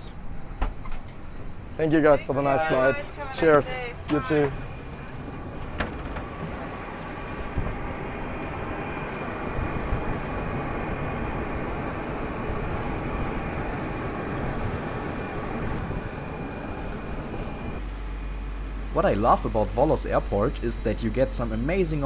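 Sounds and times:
faint high whine: 0:01.2 - 0:22.0
jet engine rushing rumble: 0:01.3 - 0:17.8.

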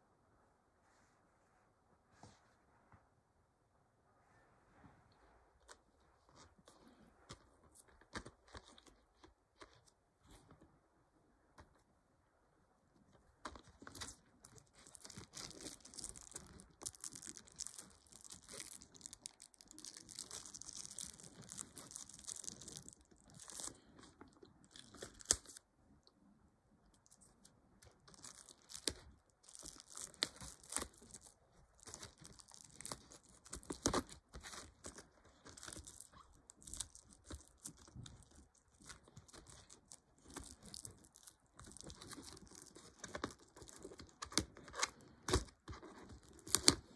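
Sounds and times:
plastic wrap crinkling and tearing: 0:13.5 - 0:25.6, 0:27.0 - 0:46.9.

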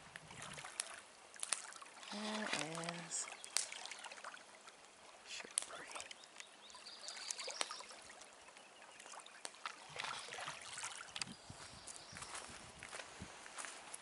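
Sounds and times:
lake water lapping at shore: 0:00.0 - 0:14.0
footsteps on gravel: 0:11.6 - 0:14.0.

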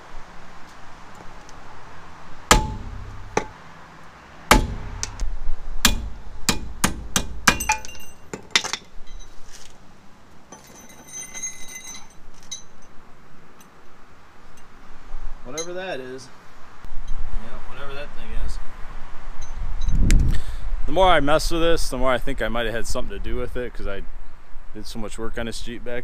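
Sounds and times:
hammer striking steel: 0:02.5 - 0:03.6, 0:04.5 - 0:05.2, 0:05.8 - 0:08.8
metal tools clinking: 0:07.6 - 0:09.6, 0:10.5 - 0:13.0, 0:15.5 - 0:15.8.

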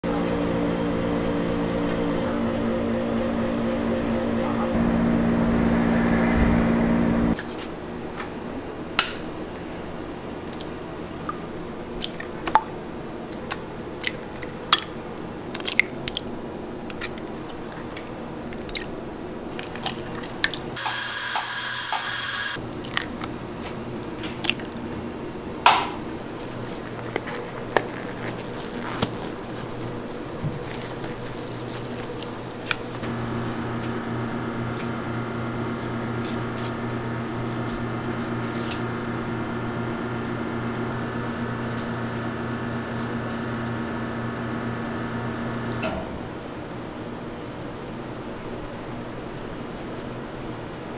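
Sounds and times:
low droning hum: 0:00.0 - 0:07.4, 0:33.1 - 0:45.9.

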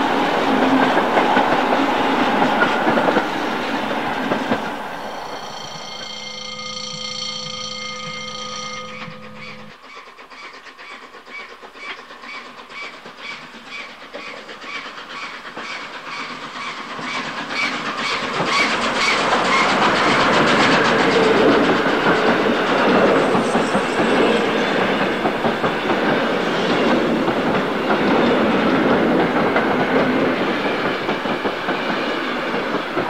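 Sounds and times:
train wagons rolling rumble: 0:00.0 - 0:06.8, 0:07.5 - 0:33.0
model train wheels clicking on rail joints: 0:08.8 - 0:24.1.

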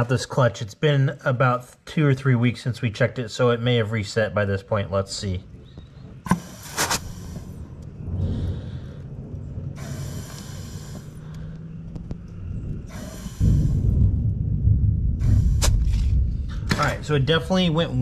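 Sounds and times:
compressed air hissing: 0:06.3 - 0:07.6, 0:09.8 - 0:11.4, 0:12.9 - 0:14.0, 0:15.2 - 0:16.1
loud low rumble: 0:07.0 - 0:18.0.

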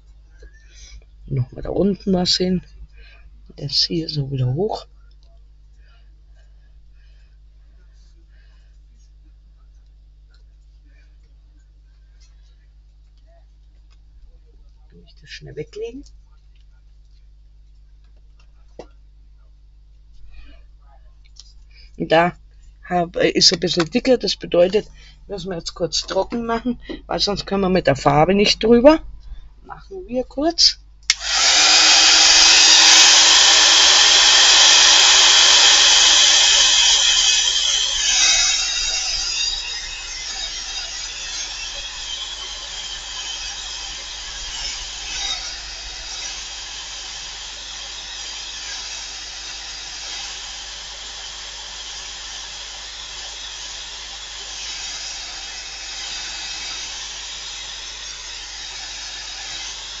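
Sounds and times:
hot-air dryer blowing: 0:31.1 - 1:00.0.

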